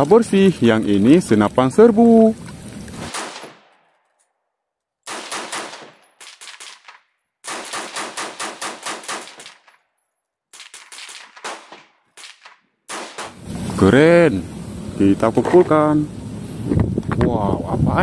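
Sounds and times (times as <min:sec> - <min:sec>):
rifle shots: 0:03.0 - 0:03.9, 0:05.0 - 0:09.8, 0:10.5 - 0:13.4.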